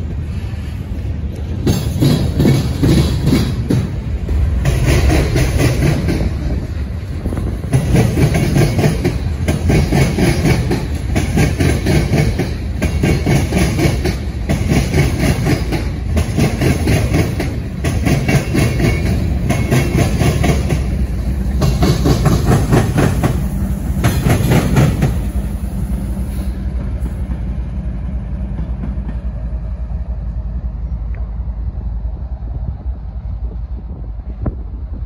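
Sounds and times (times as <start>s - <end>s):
diesel locomotive passing: 0.0s - 35.0s
low train rumble: 0.0s - 35.0s
train cars clattering over rail joints: 1.4s - 25.4s.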